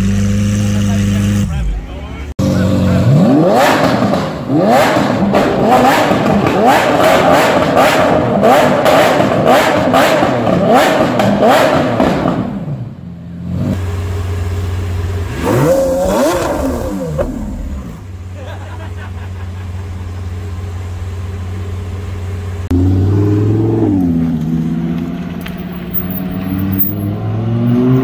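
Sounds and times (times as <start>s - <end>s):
car engine revving with crackles: 2.4s - 18.3s, 19.6s - 28.0s
car engine idling: 12.9s - 27.1s.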